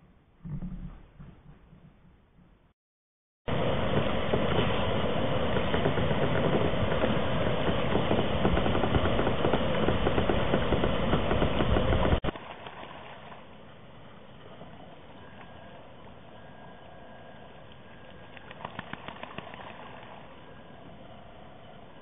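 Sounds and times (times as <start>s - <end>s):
wind buffeting microphone: 3.5s - 12.3s.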